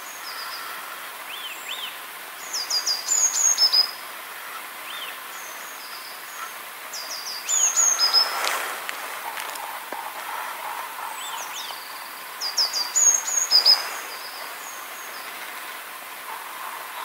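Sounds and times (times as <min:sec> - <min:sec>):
songbirds singing: 0:00.0 - 0:17.0
steady outdoor hiss: 0:00.0 - 0:17.0
thin high bird calls: 0:00.0 - 0:17.0.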